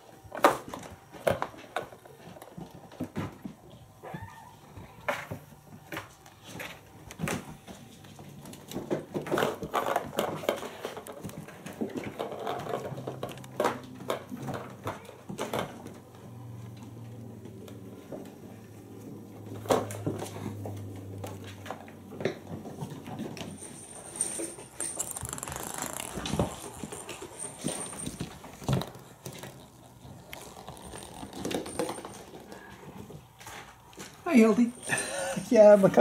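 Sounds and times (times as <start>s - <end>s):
ball rattling in plastic track: 24.3s - 32.5s.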